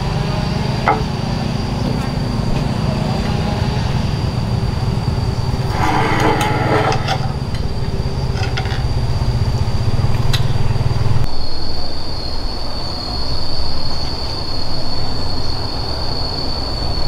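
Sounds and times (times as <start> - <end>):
small engine running: 0.0 - 11.3
high steady whine: 0.0 - 17.0
knocks and clicks: 0.8 - 1.2.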